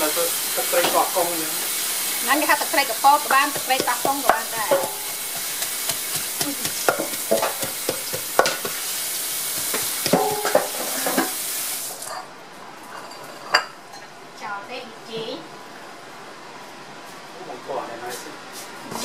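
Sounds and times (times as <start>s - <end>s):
frying sizzle: 0.0s - 12.2s
pestle knocking in a mortar: 3.5s - 8.8s, 9.6s - 10.8s.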